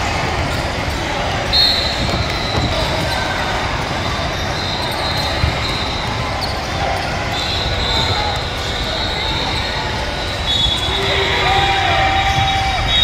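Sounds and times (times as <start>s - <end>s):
chatter in echoing hall: 0.0s - 13.0s
basketballs bouncing: 1.8s - 4.0s.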